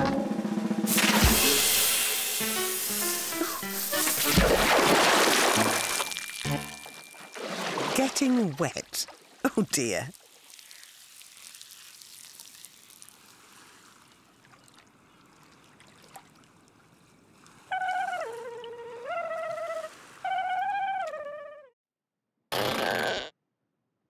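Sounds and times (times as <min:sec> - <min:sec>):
trickling splashing water: 0:01.0 - 0:18.7
short tune of wavering notes: 0:05.4 - 0:07.4.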